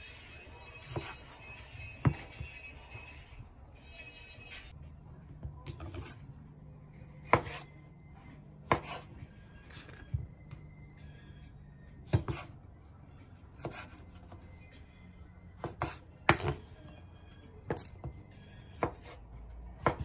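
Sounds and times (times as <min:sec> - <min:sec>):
knife striking cutting board: 0:07.2 - 0:07.6.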